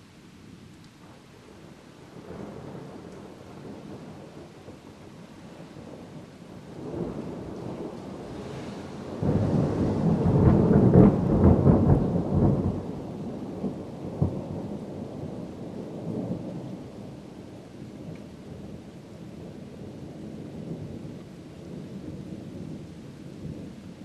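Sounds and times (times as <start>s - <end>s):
thunder rumbling: 5.5s - 24.0s
sharp thunder crack: 9.0s - 12.8s.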